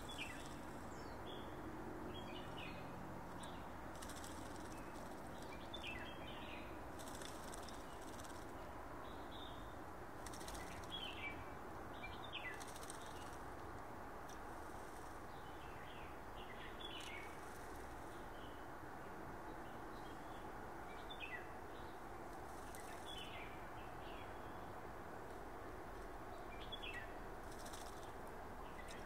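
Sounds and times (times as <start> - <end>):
low background hiss: 0.0 - 29.0
bird fluttering and splashing: 3.5 - 5.9, 6.9 - 8.6, 10.2 - 11.1, 12.5 - 13.4, 27.5 - 28.2.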